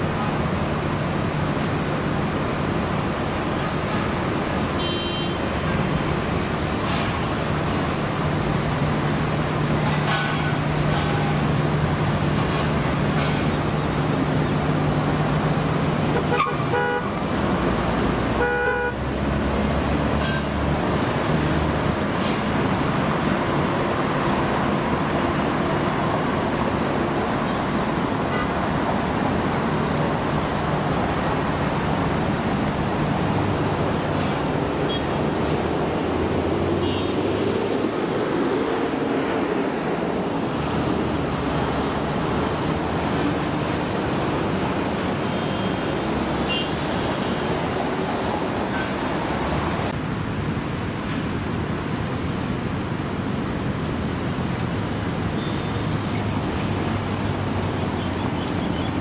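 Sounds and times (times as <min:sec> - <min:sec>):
cars passing: 0:00.0 - 0:59.0
road traffic hum: 0:00.0 - 0:59.0.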